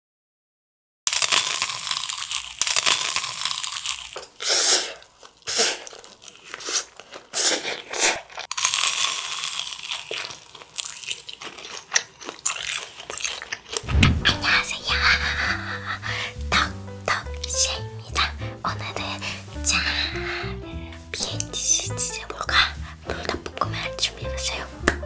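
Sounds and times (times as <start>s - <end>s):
crunchy chewing: 1.1s - 13.9s
slurping noodles: 4.2s - 8.5s
small mouth clicks: 21.2s - 21.6s.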